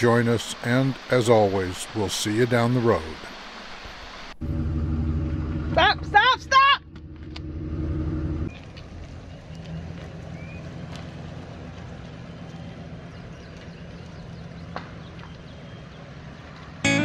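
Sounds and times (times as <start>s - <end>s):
van engine idling: 4.4s - 14.7s.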